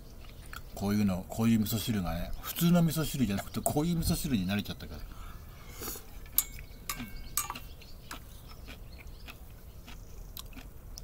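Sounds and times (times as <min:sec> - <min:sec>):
quiet chewing: 0:00.1 - 0:00.8, 0:05.0 - 0:11.0
chopsticks tapping a metal pot: 0:06.4 - 0:07.6.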